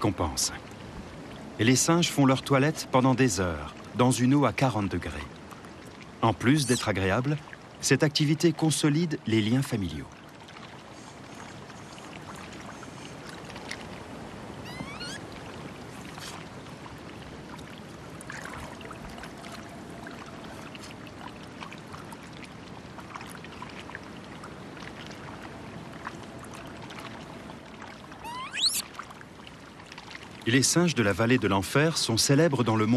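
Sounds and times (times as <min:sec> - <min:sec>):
water flowing and trickling: 0:00.0 - 0:32.9
brief rising chirp: 0:14.6 - 0:15.2, 0:28.2 - 0:28.8.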